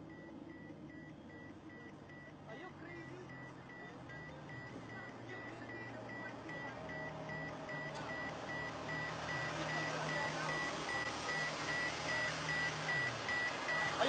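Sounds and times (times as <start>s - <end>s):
low engine hum: 0.0s - 14.0s
parking sensor rapid high beeps: 0.0s - 14.0s.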